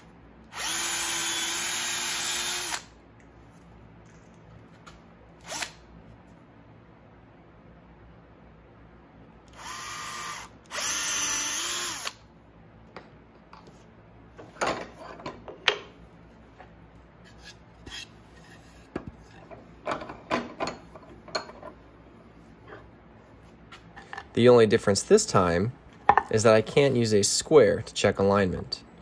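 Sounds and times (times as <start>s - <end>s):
cordless drill boring into wood: 0.5s - 2.9s, 9.5s - 12.2s
tools and wood clattering: 14.4s - 15.9s, 18.9s - 21.8s.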